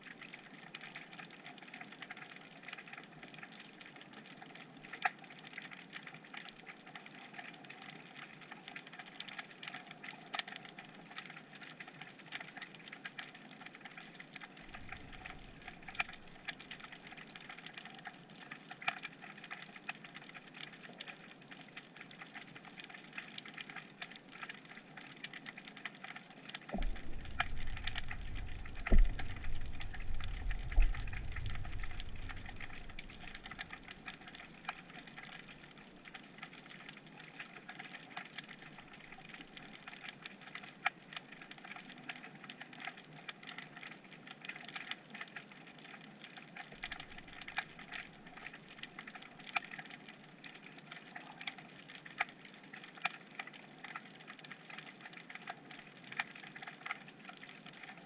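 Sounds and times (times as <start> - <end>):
underwater hiss with clicks: 26.6 - 42.3
heavy thumps: 26.8 - 33.1
low rumble: 26.8 - 33.8.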